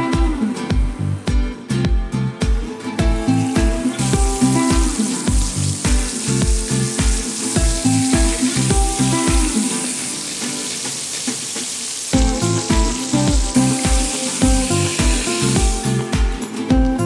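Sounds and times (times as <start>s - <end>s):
background music with beat: 0.0s - 17.0s
fish sizzling in hot oil: 3.0s - 16.4s.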